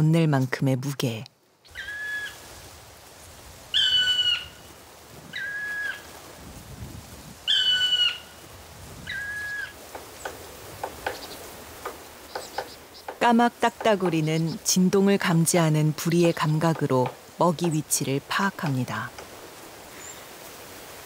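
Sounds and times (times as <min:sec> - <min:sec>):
woodpecker calling: 0:03.8 - 0:04.6, 0:07.5 - 0:08.3, 0:09.1 - 0:14.9, 0:16.0 - 0:18.0
bill tapping on wood: 0:09.9 - 0:13.2.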